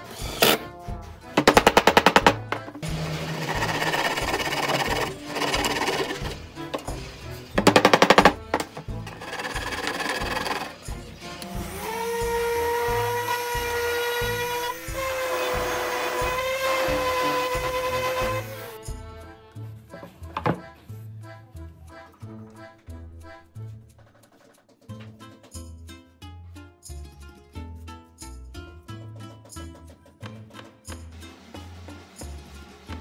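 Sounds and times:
background music with beat: 0:00.1 - 0:33.0
rapid rattling: 0:01.4 - 0:11.2
orbital sander humming: 0:02.2 - 0:06.4.

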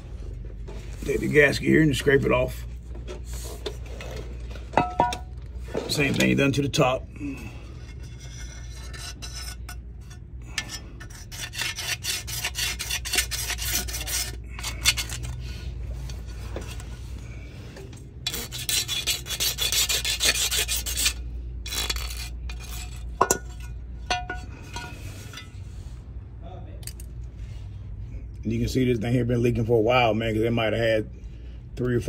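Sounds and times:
razor blade scraping metal: 0:07.9 - 0:15.4, 0:18.2 - 0:23.1.

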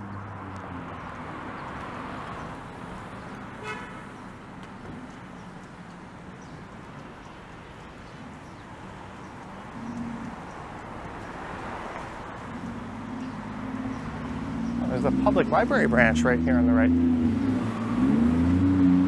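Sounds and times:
cars passing: 0:00.0 - 0:19.0
car horn toot: 0:03.6 - 0:04.1.

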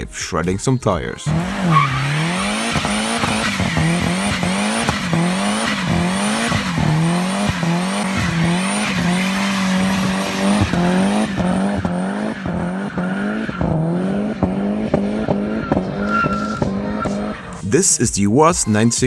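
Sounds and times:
tyres squealing: 0:01.3 - 0:14.0, 0:15.4 - 0:17.8
engine revving high: 0:01.3 - 0:17.6.

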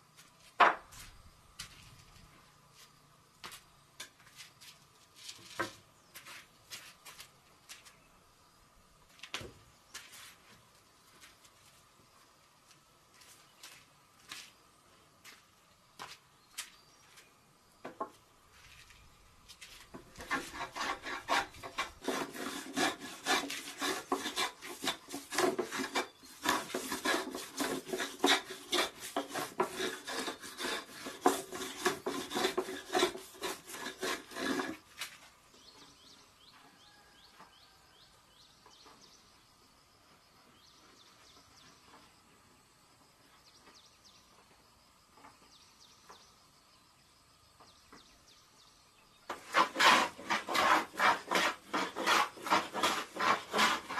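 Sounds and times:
hand plane scraping wood: 0:19.9 - 0:35.2, 0:49.3 - 0:53.9.

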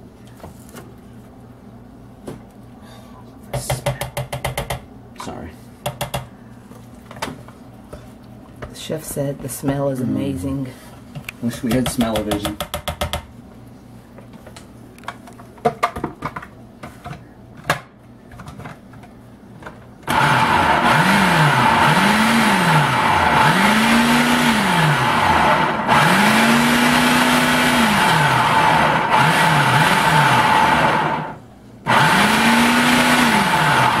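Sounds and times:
food processor motor blending: 0:20.0 - 0:34.0.

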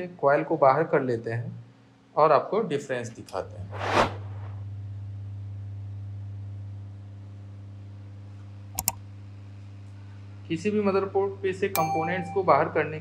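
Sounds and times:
low electrical hum: 0:00.0 - 0:13.0
quick clicks: 0:08.8 - 0:09.0.

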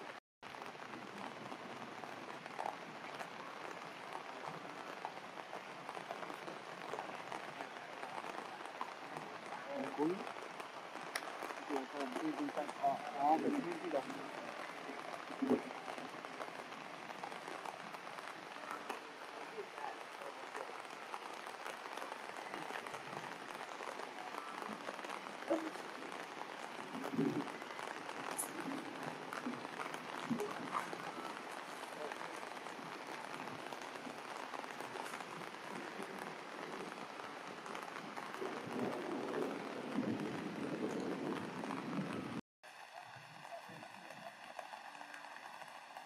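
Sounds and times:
heavy rain on wet surfaces: 0:00.0 - 0:46.0.

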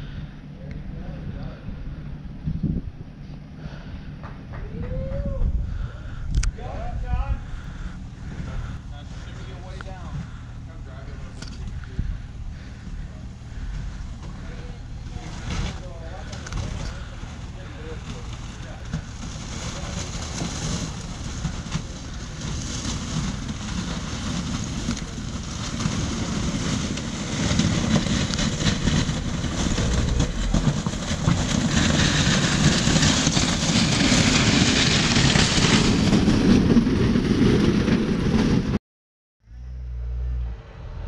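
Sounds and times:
engine running low: 0:00.0 - 0:38.8, 0:39.4 - 0:41.0
tyres crunching over loose rock: 0:07.5 - 0:38.4.

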